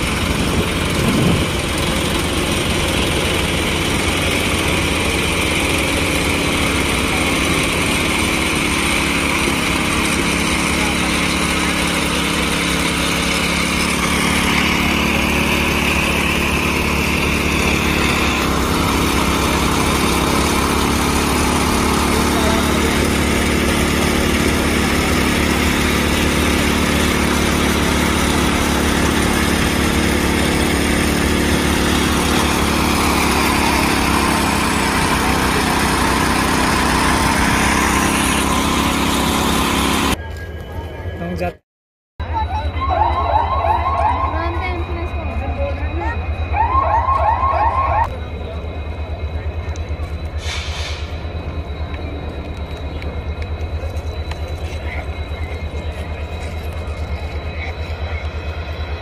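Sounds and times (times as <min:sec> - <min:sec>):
small engines running on rails: 0:00.0 - 0:41.6, 0:42.2 - 0:59.0.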